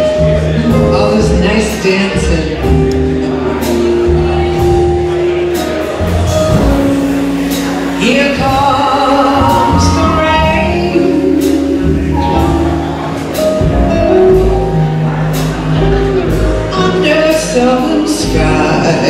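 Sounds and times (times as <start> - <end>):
drum kit with cymbals: 0.0 - 19.0
upright bass notes: 0.0 - 19.0
wavering melody line: 6.8 - 15.6.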